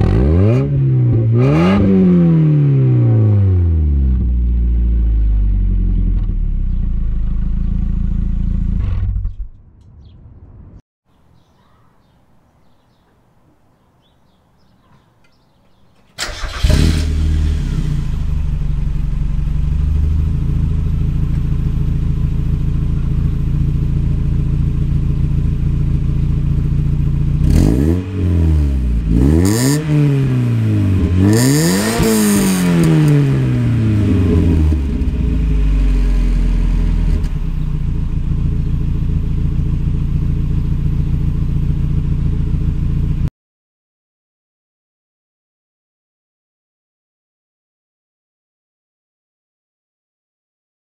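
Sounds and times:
car engine idling and revving: 0.0s - 9.6s, 16.2s - 43.3s.

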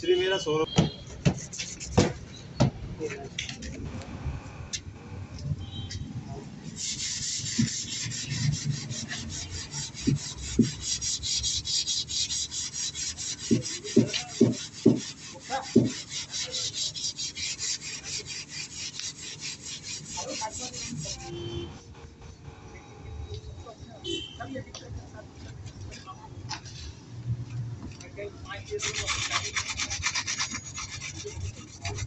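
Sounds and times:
sandpaper rubbing on filler: 1.3s - 2.2s, 6.6s - 21.7s, 28.5s - 32.0s.

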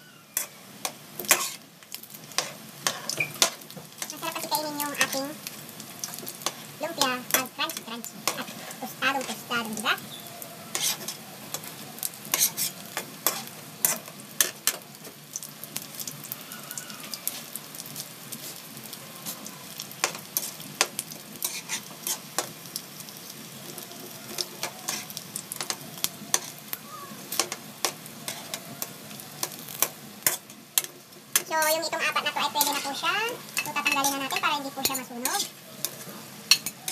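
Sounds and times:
food deep-frying in oil: 0.0s - 36.9s
metal tongs clicking on wok: 27.4s - 31.8s, 32.6s - 36.9s.

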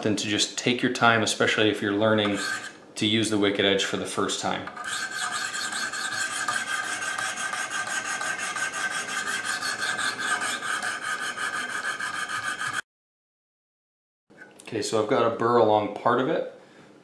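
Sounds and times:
sharpening stone rasping on knife: 2.3s - 2.8s, 4.8s - 12.8s.

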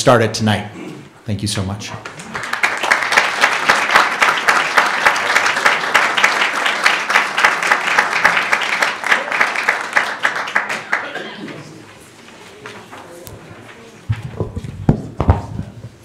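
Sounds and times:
audience applauding: 2.0s - 11.8s.

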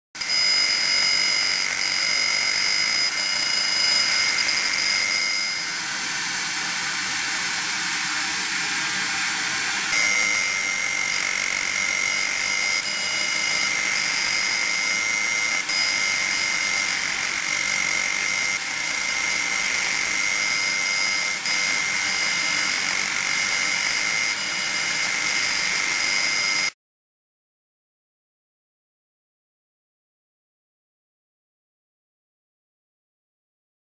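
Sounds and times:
laser buzzing whine: 0.2s - 26.8s.

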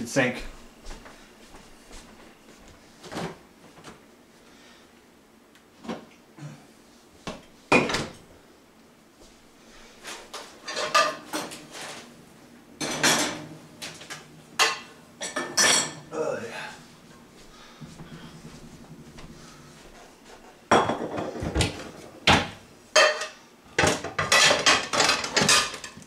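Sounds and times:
drawer or cupboard sounds: 10.1s - 12.1s, 12.8s - 14.2s
kitchen things clattering on counter: 10.6s - 11.9s, 12.8s - 13.4s, 20.7s - 22.0s, 23.0s - 26.0s.

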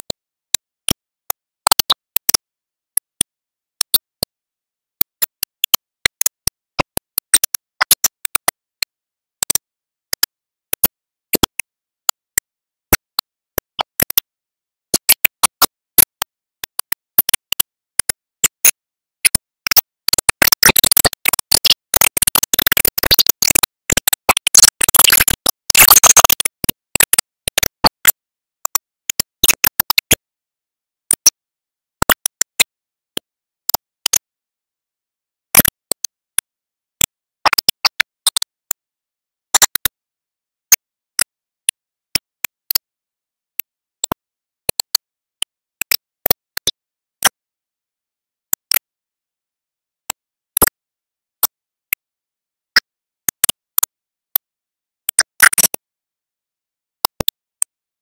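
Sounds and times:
digital clicks and crackles: 15.0s - 30.3s, 35.6s - 38.5s.

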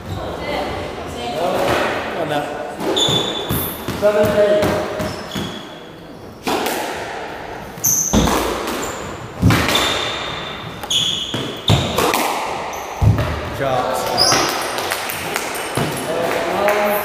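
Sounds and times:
shoes squeaking on wooden floor: 2.8s - 6.5s, 7.7s - 12.0s, 14.0s - 14.8s
squash ball hit by rackets: 6.4s - 13.5s
ball smacking off court walls: 8.0s - 13.4s.

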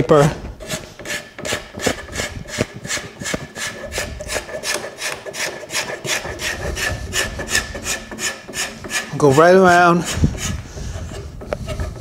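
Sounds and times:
card scraper scraping wood: 0.6s - 12.0s.

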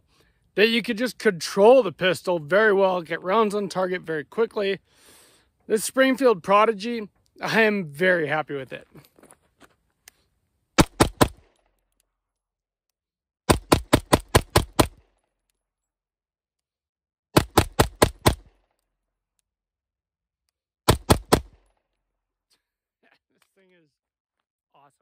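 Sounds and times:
pistol gunshots: 10.8s - 11.6s, 13.5s - 15.1s, 17.4s - 18.6s, 20.9s - 21.7s.

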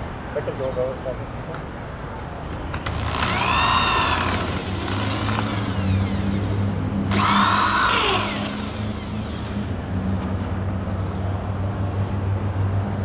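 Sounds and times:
electric drill drilling into wood: 2.8s - 9.7s.

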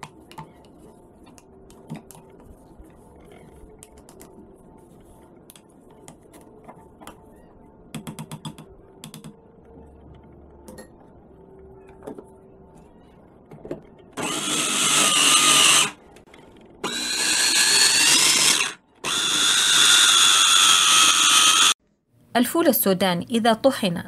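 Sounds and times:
electric mini chopper grinding: 14.2s - 16.0s, 16.8s - 21.8s.

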